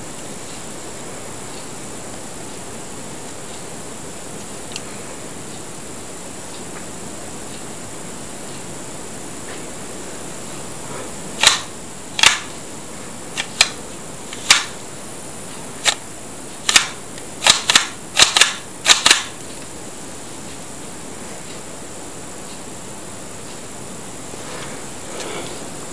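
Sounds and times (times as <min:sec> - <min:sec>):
plastic toy gun clicks: 0:11.4 - 0:12.5, 0:14.4 - 0:14.7, 0:16.7 - 0:19.3.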